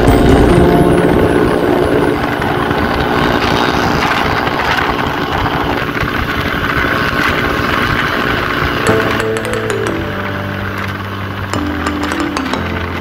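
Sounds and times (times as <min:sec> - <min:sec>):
wind rushing over microphone: 0:00.0 - 0:08.9
motorcycle engine drone: 0:00.0 - 0:13.0.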